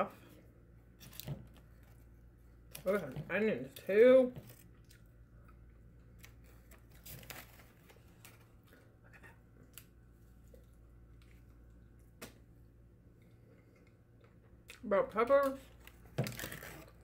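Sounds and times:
biting and chewing food: 4.4 - 11.7
paper wrapper crinkling: 6.2 - 8.8.

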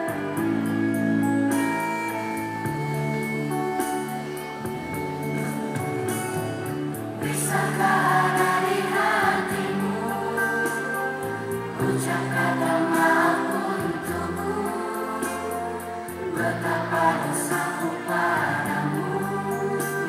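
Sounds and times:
instrumental backing of held notes: 0.0 - 20.0
children singing in unison: 6.4 - 20.0.

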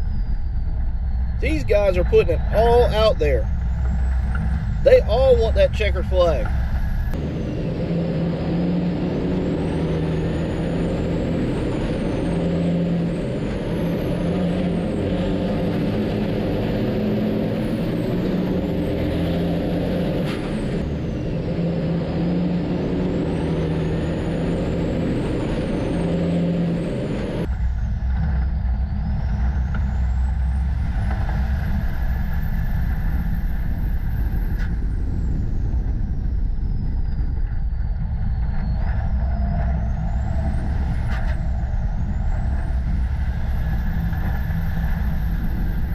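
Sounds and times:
truck diesel engines racing: 0.0 - 45.9.

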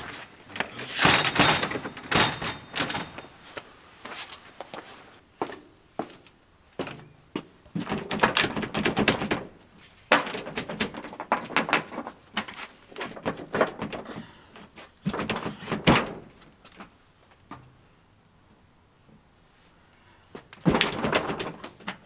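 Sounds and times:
door and handle rattling: 1.0 - 3.4, 7.8 - 9.5, 10.1 - 12.5, 20.6 - 22.0.

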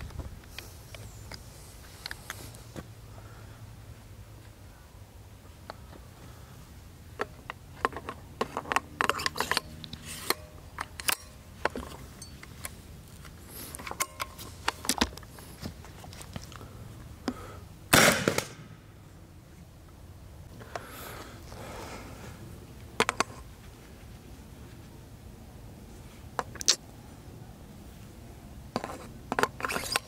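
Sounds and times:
launcher shot: 17.9 - 18.8.

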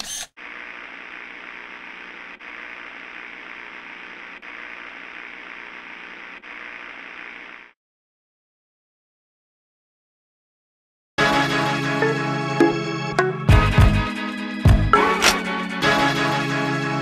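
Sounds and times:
static-like hiss: 0.4 - 7.8.

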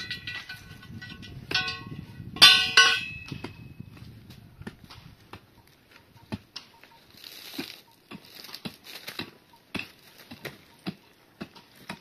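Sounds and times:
crinkly rustle: 6.8 - 9.3.

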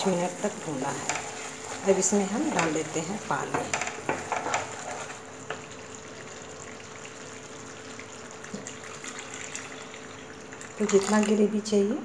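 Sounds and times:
water pouring into gravy: 5.7 - 11.3.

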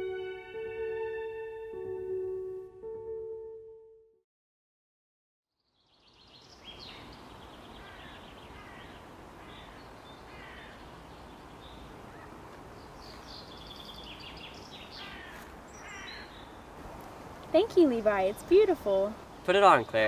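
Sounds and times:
songbirds chirping and trilling: 5.6 - 16.8, 17.4 - 20.0.

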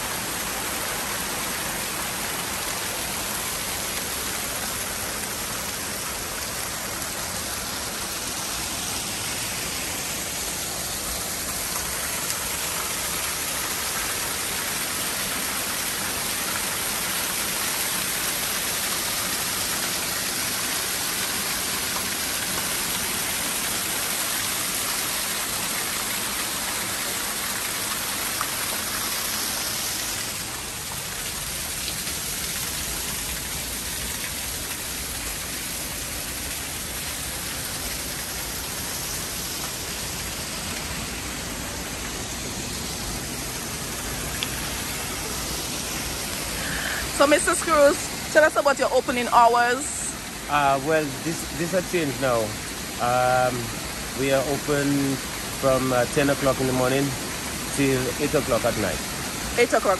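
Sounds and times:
water cascading into pools: 0.0 - 59.9.

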